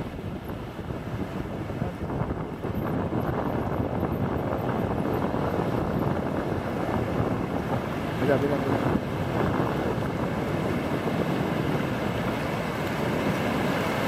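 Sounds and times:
wind buffeting microphone: 0.0 - 14.0
waves breaking on shore: 4.7 - 14.0.

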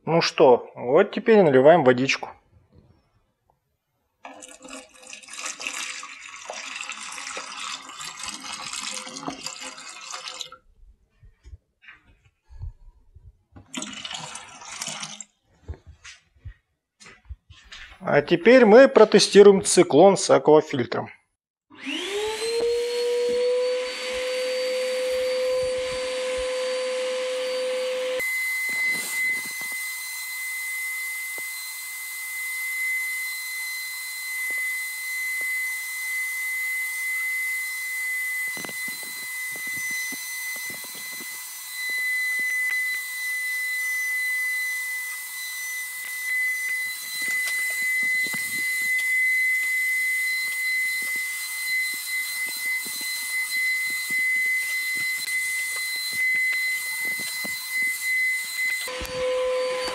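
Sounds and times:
vacuum cleaner motor whining: 21.7 - 59.9
wood chips rattling through hose: 28.6 - 30.2.

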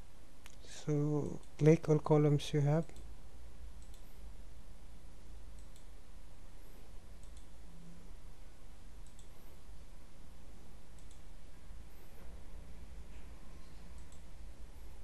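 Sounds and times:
low background hum: 0.0 - 15.0
computer mouse clicking: 3.8 - 4.1, 5.6 - 5.9, 7.2 - 7.5, 9.0 - 9.4, 11.0 - 11.3, 13.7 - 14.3.

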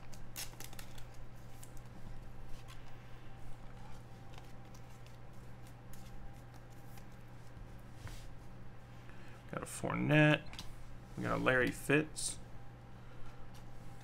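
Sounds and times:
trading cards clicking and rustling: 0.0 - 3.0, 3.8 - 7.6
steady low hum: 0.0 - 14.0.

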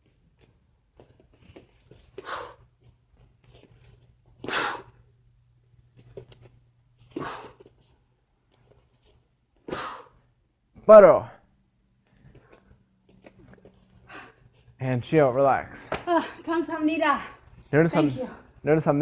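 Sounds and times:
sharp exhaled breaths: 4.4 - 5.0, 9.6 - 10.3.

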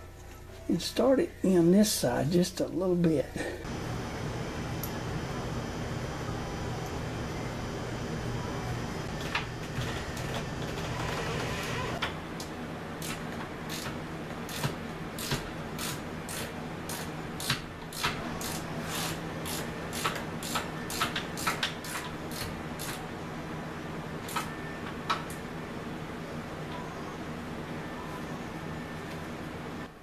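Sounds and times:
low steady hum: 0.0 - 13.5.

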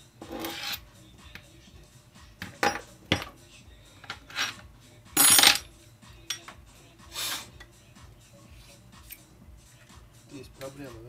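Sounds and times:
metal tools clinking: 5.2 - 6.5.

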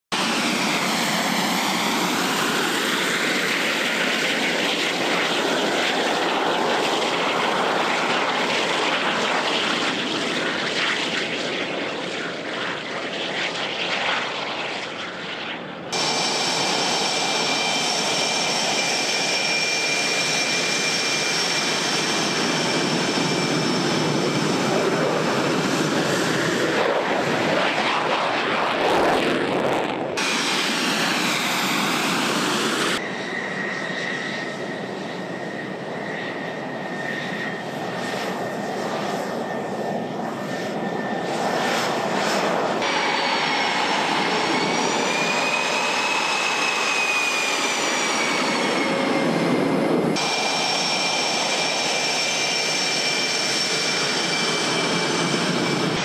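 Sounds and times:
jet engines running loudly: 0.1 - 56.0
high-pitched whines: 13.5 - 29.0, 29.6 - 42.0, 42.7 - 56.0.

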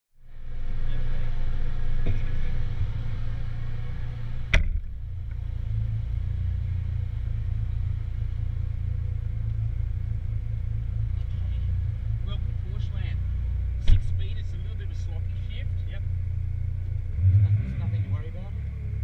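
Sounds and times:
car engine idling: 0.2 - 19.0
car door slamming: 4.5 - 5.0, 13.8 - 14.2.

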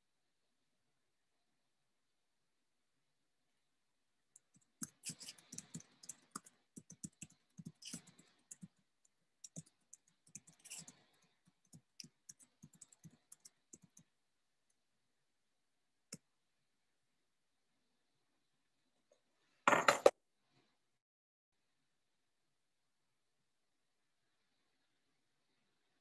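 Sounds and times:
computer keyboard typing: 4.4 - 14.1.

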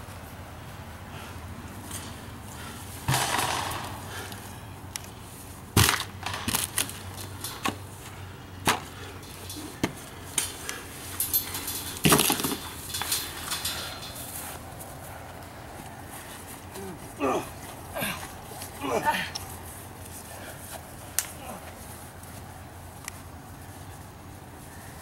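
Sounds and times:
junk crashing: 11.2 - 14.4.

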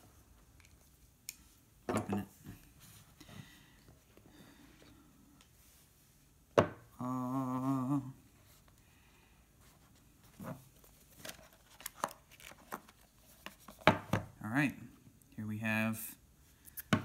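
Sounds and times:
person humming: 6.9 - 8.2.

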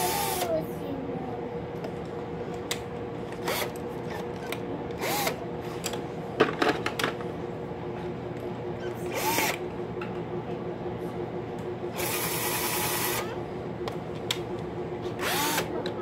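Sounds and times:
power drill motor running: 0.0 - 0.5, 3.3 - 5.4, 8.8 - 9.7, 11.9 - 13.5, 15.0 - 15.8.

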